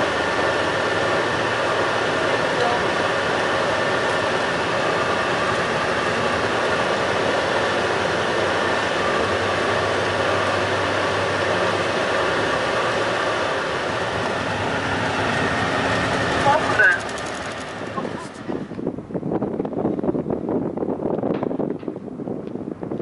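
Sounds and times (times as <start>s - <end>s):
bus engine and road noise: 0.0s - 23.0s.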